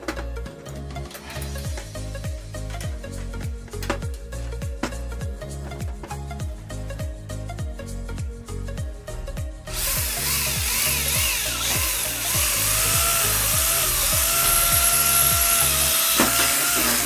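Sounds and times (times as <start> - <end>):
background music with beat: 0.0 - 17.0
electric drill boring into metal: 9.7 - 17.0.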